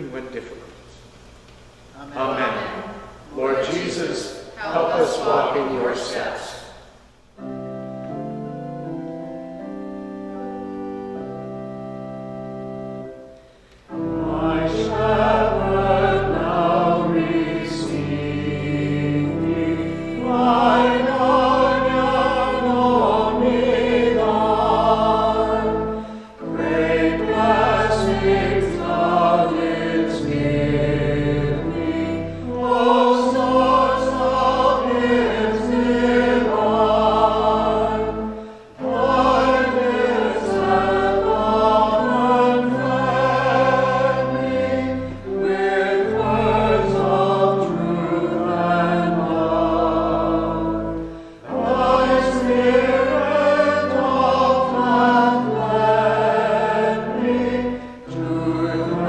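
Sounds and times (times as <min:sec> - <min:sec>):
pipe organ chords: 0:00.0 - 0:59.0
small choir singing: 0:13.9 - 0:59.0.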